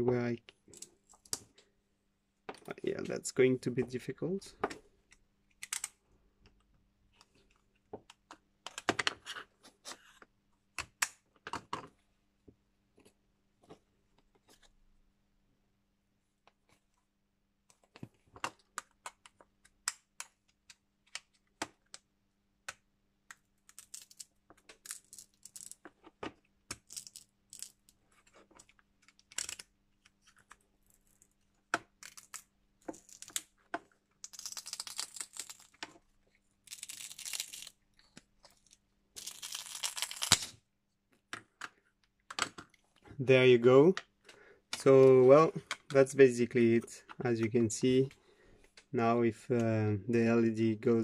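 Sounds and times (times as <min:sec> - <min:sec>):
small clicks and cracks: 0:17.7 - 0:36.0, 0:36.6 - 0:43.1.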